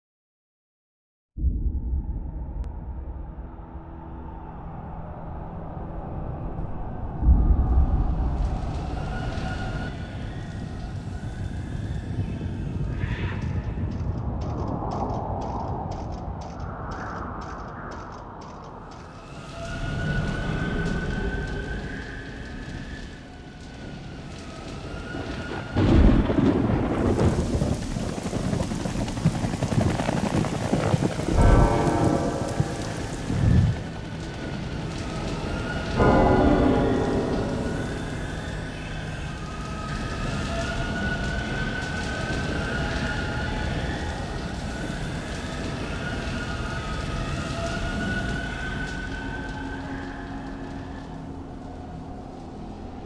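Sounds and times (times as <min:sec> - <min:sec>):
low rumble: 0:01.4 - 0:53.0
heavy rain: 0:07.4 - 0:14.7, 0:19.1 - 0:52.7
hissing wash: 0:19.2 - 0:36.0.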